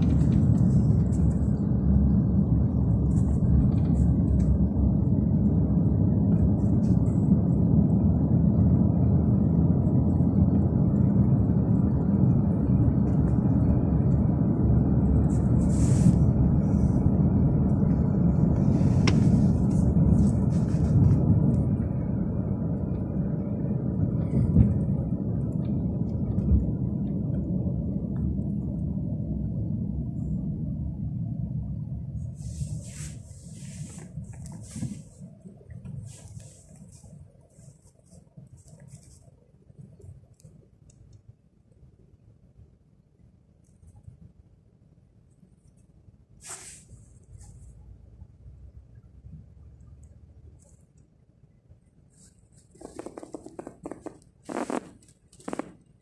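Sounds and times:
car cabin road rumble: 0.0s - 56.0s
brief hisses: 46.4s - 47.6s.

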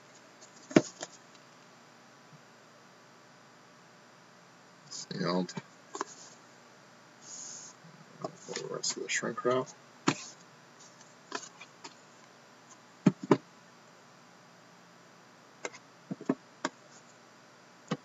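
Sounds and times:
cardboard boxes handled clicks and knocks: 0.4s - 1.2s.

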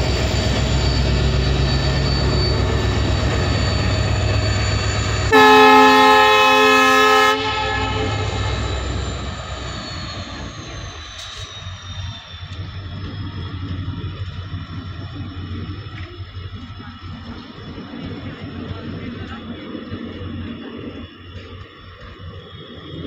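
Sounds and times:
diesel locomotive running hard: 0.0s - 23.0s
train horn: 5.3s - 8.8s.

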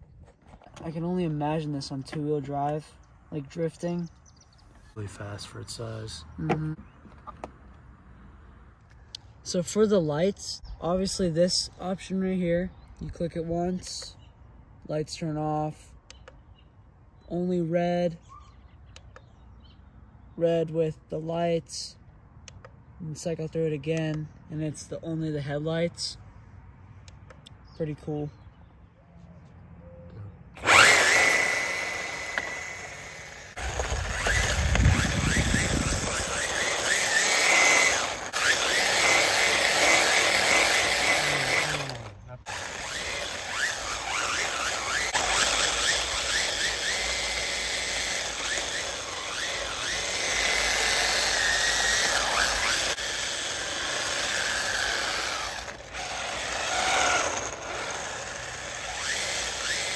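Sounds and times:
electric motor whining: 30.6s - 59.9s.

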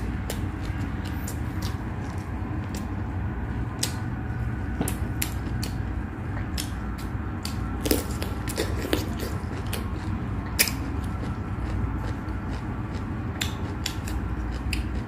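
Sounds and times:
steady low hum: 0.0s - 15.0s
chewing and wet mouth clicks: 6.5s - 15.0s.

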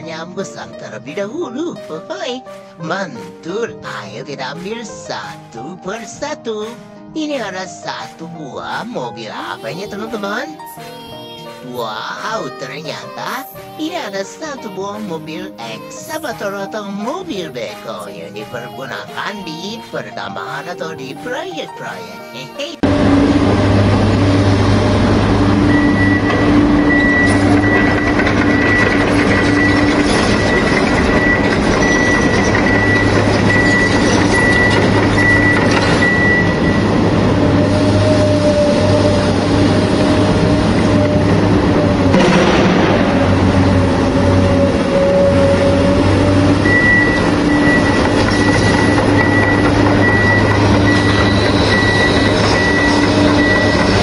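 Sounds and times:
diesel engine running: 22.8s - 54.0s
high beeping alarm: 25.5s - 37.1s, 41.1s - 54.0s.

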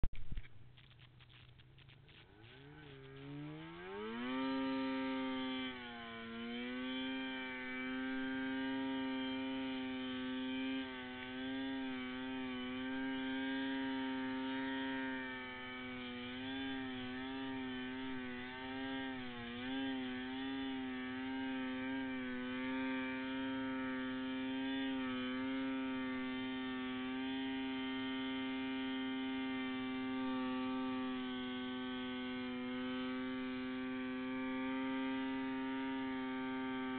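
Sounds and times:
snowmobile engine revving: 1.8s - 36.9s.

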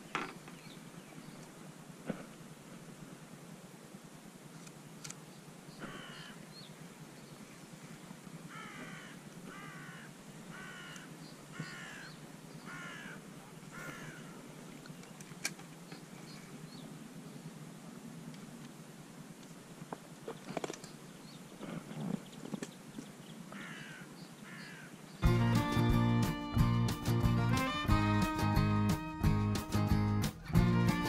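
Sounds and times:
crow cawing: 5.8s - 6.4s, 8.5s - 14.4s, 23.5s - 25.0s.

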